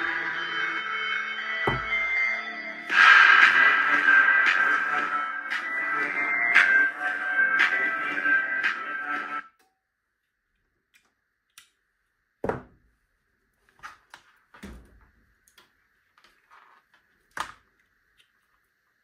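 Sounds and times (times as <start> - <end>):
heavy thumps: 1.7 - 2.2.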